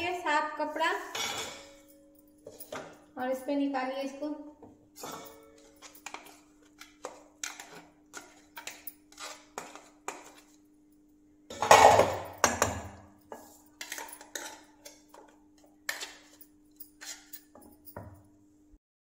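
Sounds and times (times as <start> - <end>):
steel jar clinking on pot: 5.0 - 6.2.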